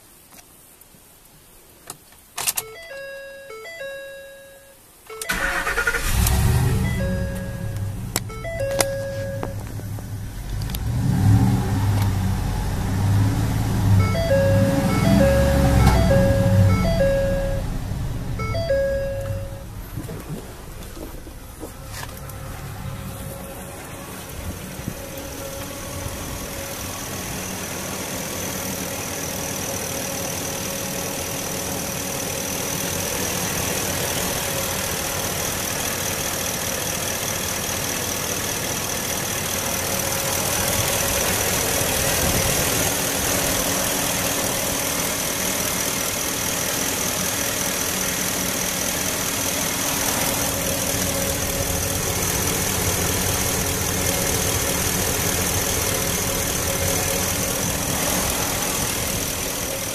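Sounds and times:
high-pitched whine: 3.4 - 30.8
pickup engine idling: 5.3 - 59.9.

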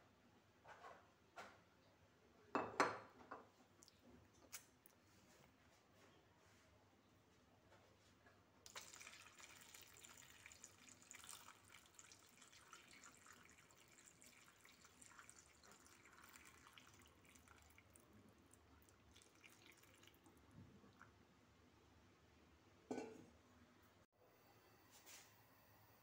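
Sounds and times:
water trickling into a pot: 8.7 - 21.2.

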